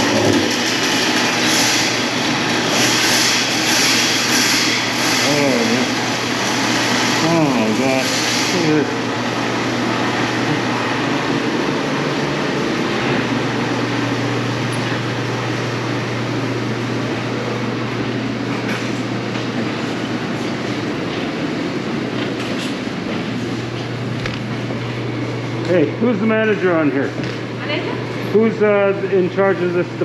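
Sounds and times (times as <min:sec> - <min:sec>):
machinery humming: 0:00.0 - 0:30.0.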